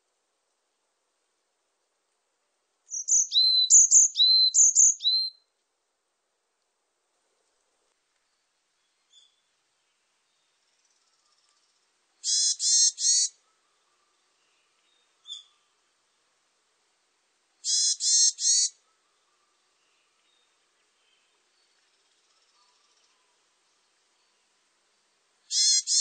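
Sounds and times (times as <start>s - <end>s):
bird harsh nasal calls: 12.2s - 13.4s, 17.6s - 18.8s, 25.5s - 26.0s.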